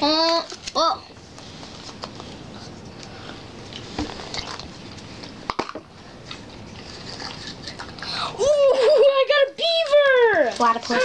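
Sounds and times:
foil wrappers rustling: 9.6 - 11.0.

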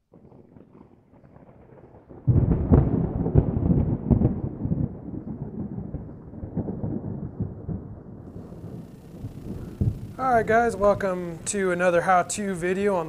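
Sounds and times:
low thunder-like rumble: 0.1 - 11.8.

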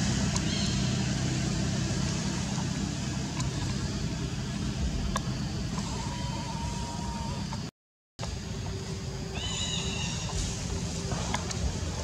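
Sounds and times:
vehicle engine and tyre rumble: 0.0 - 12.0.

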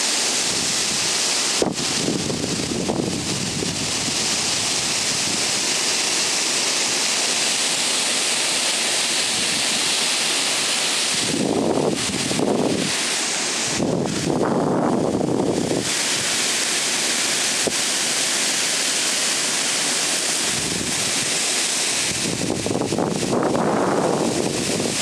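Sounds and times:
heavy rain hiss: 0.0 - 25.0
trees thrashing in wind: 0.0 - 25.0
wind gusts buffeting microphone: 1.6 - 5.6, 11.1 - 13.0, 13.7 - 15.9, 20.5 - 21.2, 22.1 - 25.0.

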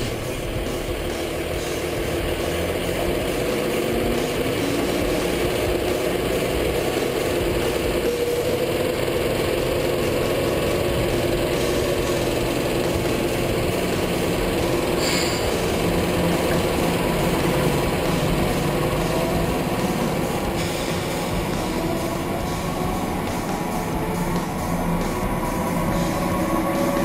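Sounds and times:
diesel truck engine running: 0.0 - 27.0
brief high squeak: 15.0 - 15.5.

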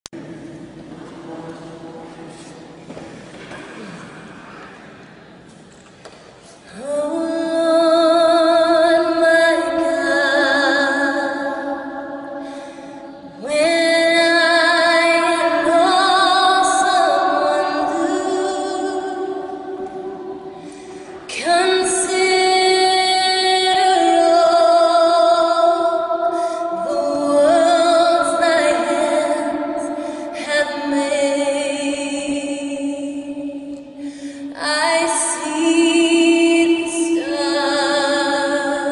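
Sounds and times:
woman singing unaccompanied: 6.7 - 12.4, 13.3 - 20.6, 21.3 - 38.9.

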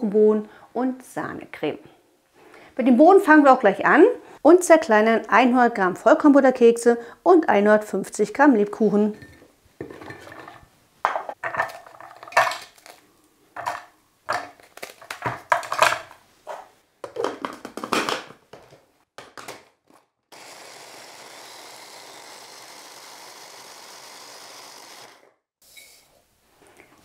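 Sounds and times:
lid knocks and clatter: 9.2 - 12.7, 13.6 - 18.7
biscuits dropping into plastic bowl: 13.6 - 16.2
electric chopper grinding: 20.3 - 25.4.

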